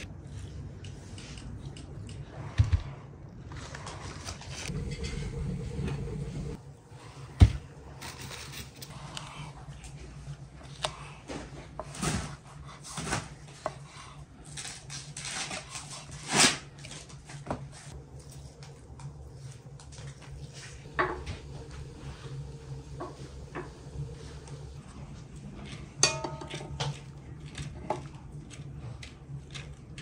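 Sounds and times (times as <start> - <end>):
low handling rumble: 4.6 - 10.5, 17.9 - 30.0.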